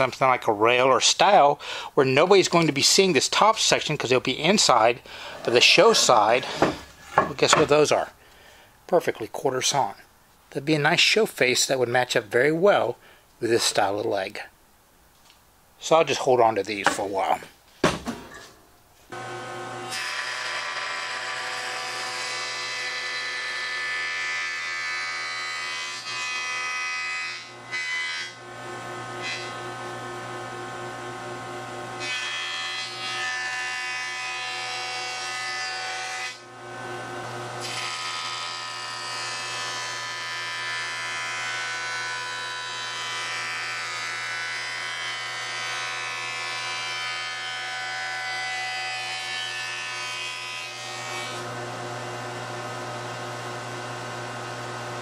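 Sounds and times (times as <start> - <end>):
wood cutting hiss: 4.6 - 8.4
jointer motor whine: 19.1 - 22.0, 51.3 - 55.0.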